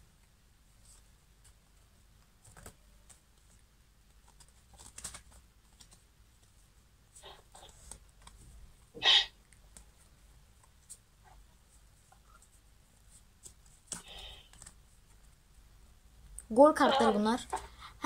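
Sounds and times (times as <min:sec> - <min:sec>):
playing cards shuffling: 0:04.1 - 0:06.6, 0:07.2 - 0:08.4, 0:12.1 - 0:15.2.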